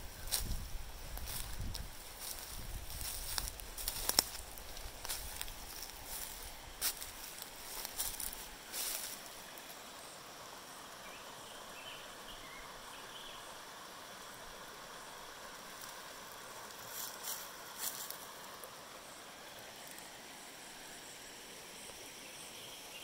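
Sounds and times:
creek rushing over rocks: 0:00.0 - 0:22.0
rustles or footfalls: 0:01.2 - 0:09.2.

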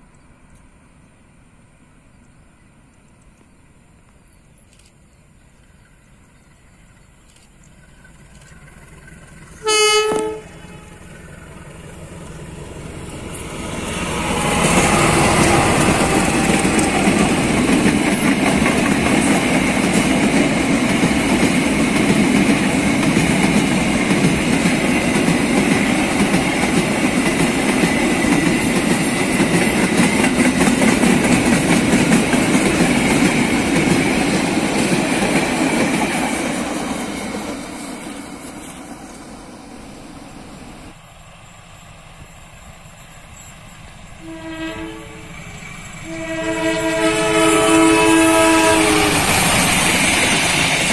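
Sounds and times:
freight train passing: 0:00.0 - 0:50.9
locomotive horn blast: 0:09.6 - 0:11.2, 0:44.2 - 0:45.4, 0:46.0 - 0:49.4.

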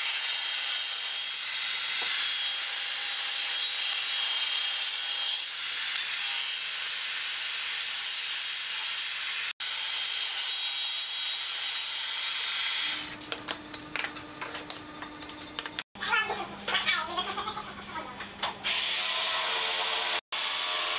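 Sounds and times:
table saw cutting wood: 0:00.0 - 0:13.3, 0:18.6 - 0:20.9.

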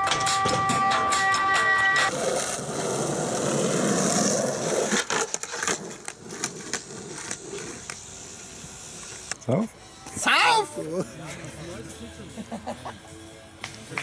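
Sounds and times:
skateboard wheels rolling on asphalt: 0:02.0 - 0:09.3
skateboard clacking on pavement: 0:02.1 - 0:08.0.

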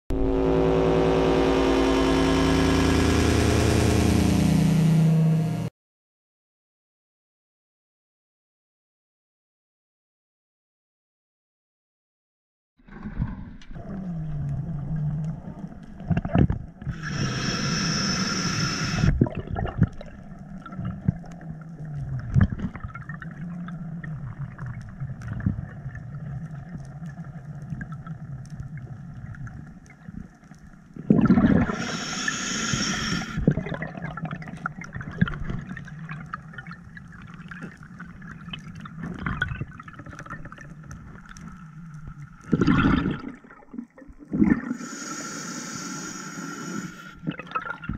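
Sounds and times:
loud rushing hisses: 0:17.0 - 0:19.1, 0:44.8 - 0:47.1.

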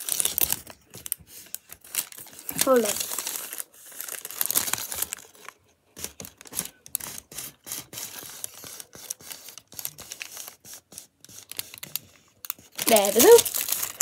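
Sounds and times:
paper rustling and crinkling: 0:00.0 - 0:14.0.

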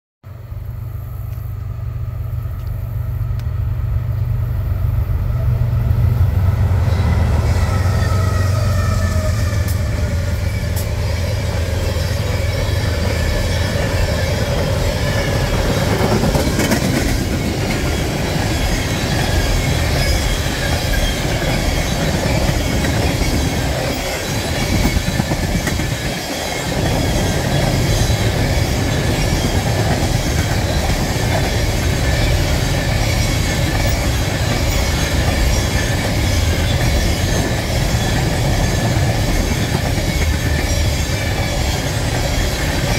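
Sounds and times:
diesel locomotive rumble: 0:00.3 - 0:42.9
train wheels on rails: 0:00.3 - 0:42.9
wheels clacking: 0:09.6 - 0:42.9.

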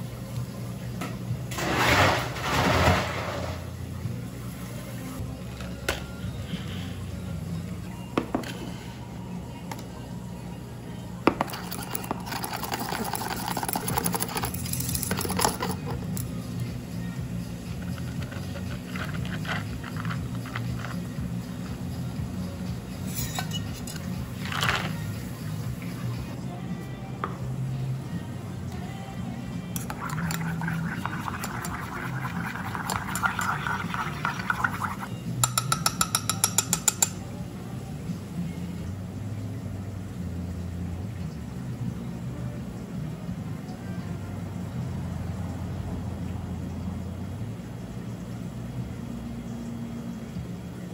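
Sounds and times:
low steady hum: 0:00.0 - 0:50.9
spoon stirring in pitcher: 0:11.3 - 0:16.3, 0:17.7 - 0:21.1, 0:29.8 - 0:37.2
whisk clinking in metal pitcher: 0:11.5 - 0:15.9, 0:29.8 - 0:37.2.

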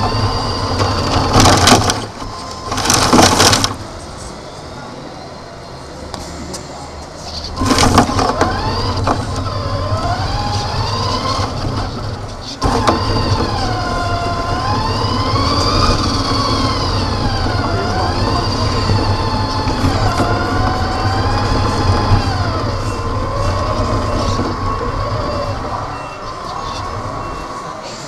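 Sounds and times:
toy car motor whining: 0:07.4 - 0:27.4.

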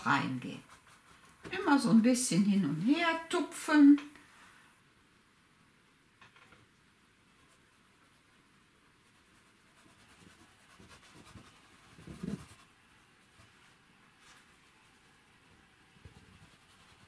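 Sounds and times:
brush scratching on canvas: 0:00.0 - 0:02.9, 0:07.3 - 0:17.0.

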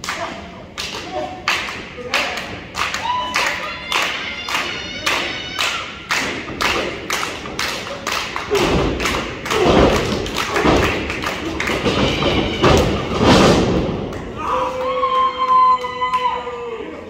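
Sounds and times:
rhythmic clapping: 0:00.0 - 0:16.2.

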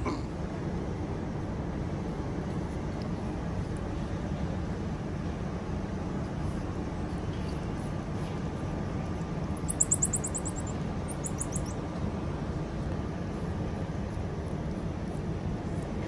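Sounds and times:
steady low hum: 0:00.0 - 0:16.0
marmosets high falling chirps: 0:09.6 - 0:11.8.

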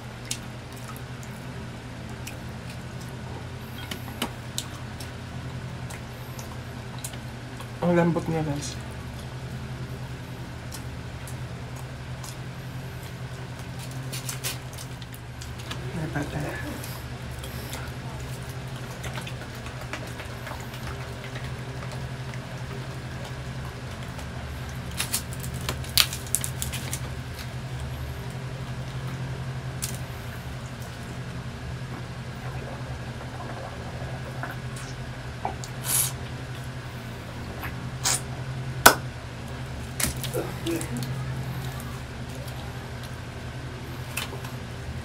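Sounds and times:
steady low hum: 0:00.0 - 0:45.0
person drinking: 0:32.0 - 0:36.3, 0:37.6 - 0:38.3, 0:40.2 - 0:42.9.

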